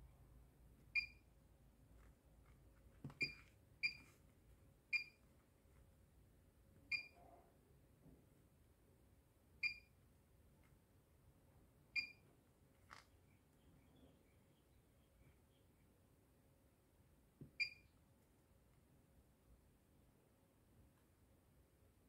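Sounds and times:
keypad beeps: 1.0 - 1.2, 3.2 - 4.1, 4.9 - 5.2, 6.9 - 7.2, 9.6 - 9.9, 12.0 - 12.2, 17.6 - 17.9.

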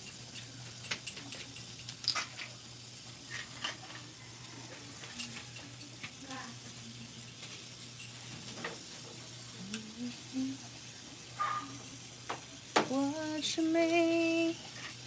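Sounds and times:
fish sizzling on a grill: 0.0 - 15.0
low steady hum: 5.0 - 15.0.

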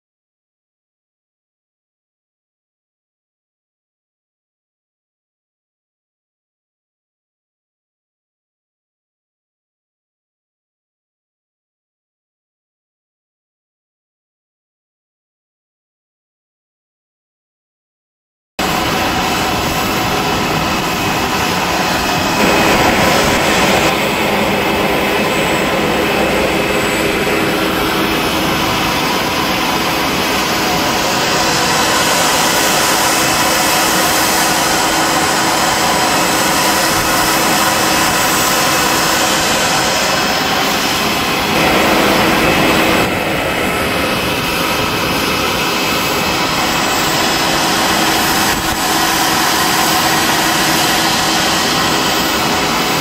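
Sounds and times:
jet turbine whine: 18.6 - 53.0.

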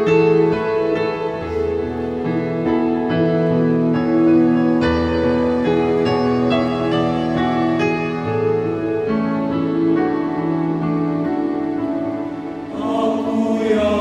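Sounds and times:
mixed choir singing chords: 12.2 - 14.0.

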